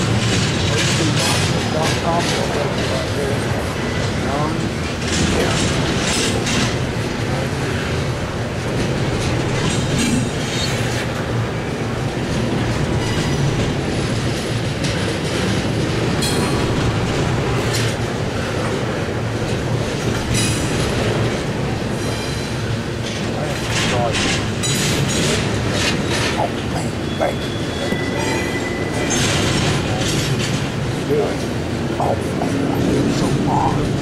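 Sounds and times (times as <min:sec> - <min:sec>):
clickety-clack over rail joints: 0:00.0 - 0:34.0
train wheels rumbling on rail: 0:00.0 - 0:34.0
high wheel squeals: 0:25.9 - 0:30.0.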